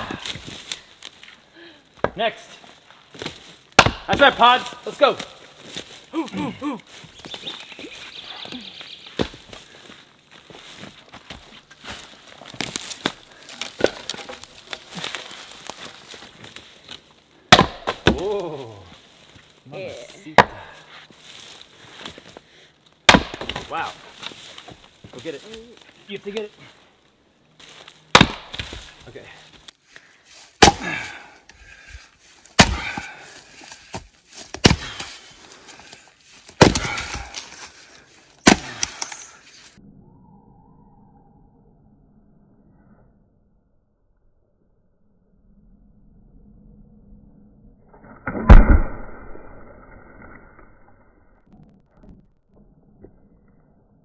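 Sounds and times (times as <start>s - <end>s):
footsteps crunching through brush: 2.6s - 3.8s, 4.6s - 17.2s, 18.5s - 22.5s, 23.3s - 30.6s, 32.0s - 39.8s
axe striking firewood: 3.2s - 4.5s, 12.6s - 15.4s, 17.5s - 18.6s, 20.3s - 20.9s, 23.0s - 24.8s, 28.1s - 29.0s, 30.6s - 31.2s, 32.4s - 35.2s, 36.5s - 37.7s, 38.4s - 39.2s, 48.2s - 49.2s.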